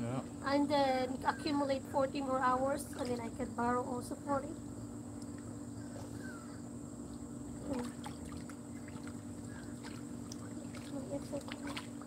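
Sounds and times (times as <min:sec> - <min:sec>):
pool water lapping and splashing: 0:02.6 - 0:03.5, 0:07.6 - 0:12.0.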